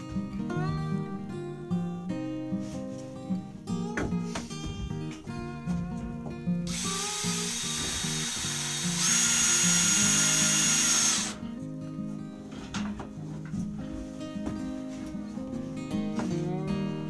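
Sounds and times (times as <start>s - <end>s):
acoustic guitar music: 0.0s - 17.0s
cordless drill driving screw: 6.7s - 11.4s.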